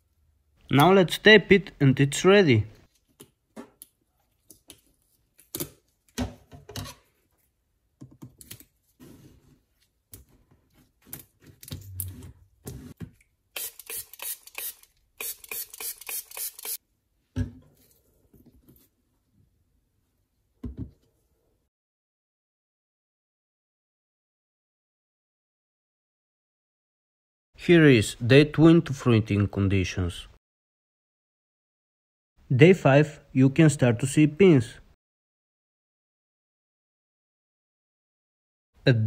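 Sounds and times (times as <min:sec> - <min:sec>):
adhesive tape unrolling: 0:13.6 - 0:16.8.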